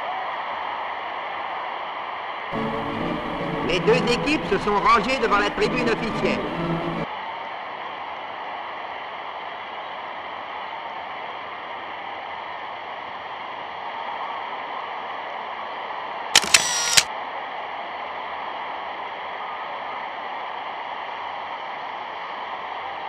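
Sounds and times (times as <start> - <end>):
film soundtrack hiss: 2.5 - 7.1
sharp click: 16.4 - 17.1.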